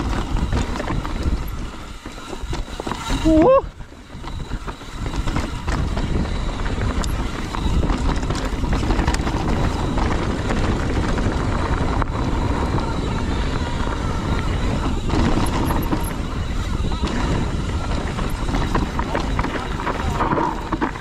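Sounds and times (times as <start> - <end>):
bike clicks and rattles: 0.0 - 21.0
wind rumble on microphone: 0.0 - 21.0
tyres rolling over rock: 14.4 - 21.0.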